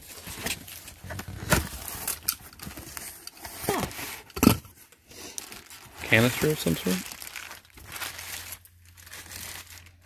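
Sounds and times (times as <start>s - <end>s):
plastic wrap crinkling: 5.3s - 10.0s.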